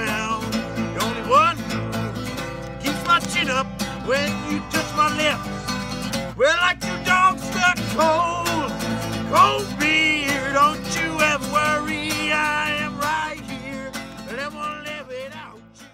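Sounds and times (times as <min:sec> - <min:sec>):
acoustic guitar: 0:00.0 - 0:15.9
person singing: 0:06.4 - 0:15.9.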